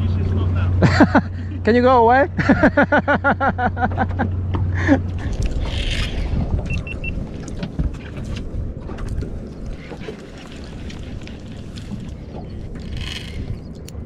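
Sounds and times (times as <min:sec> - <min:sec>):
wind: 0:00.0 - 0:14.0
water noise: 0:04.0 - 0:14.0
fishing reel clicks: 0:12.8 - 0:13.9.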